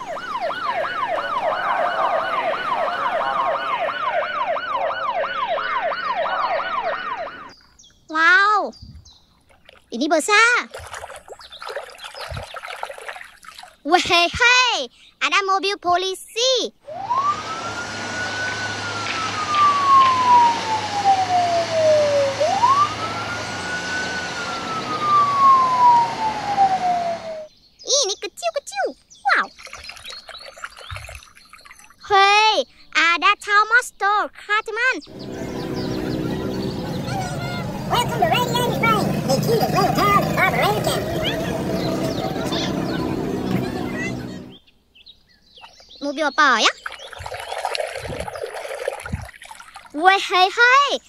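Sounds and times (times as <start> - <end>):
fire engine siren yelping: 0.0 - 7.6, 16.8 - 27.5, 35.1 - 44.6.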